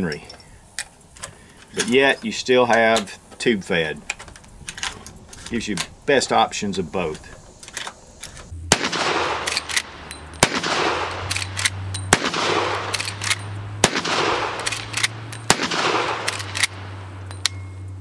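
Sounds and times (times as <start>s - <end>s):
rifle shots echoing: 8.7s - 17.2s
rifle lever clicking: 9.4s - 9.9s, 11.2s - 11.8s, 16.2s - 16.8s.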